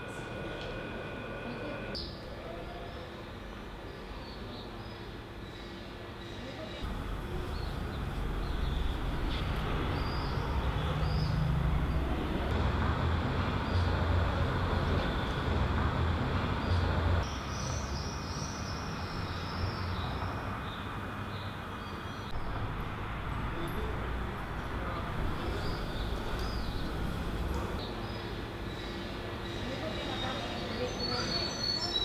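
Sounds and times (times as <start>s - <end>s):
small birds chirping: 2.8s - 12.1s, 25.3s - 32.0s.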